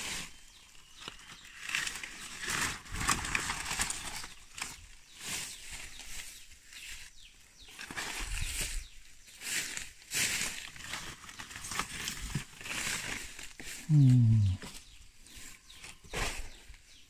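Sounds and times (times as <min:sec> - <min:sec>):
dry leaves rustling and crackling: 0:00.0 - 0:14.3.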